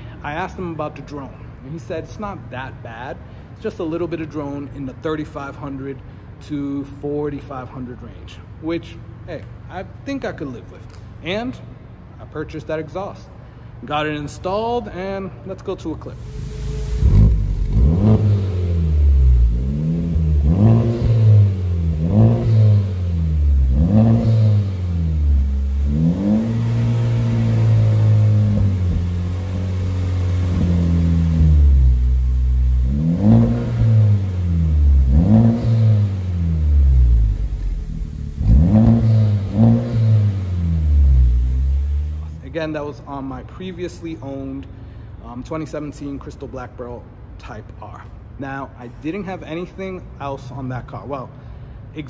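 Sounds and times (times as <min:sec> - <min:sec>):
car engine revving: 0:16.0 - 0:42.4.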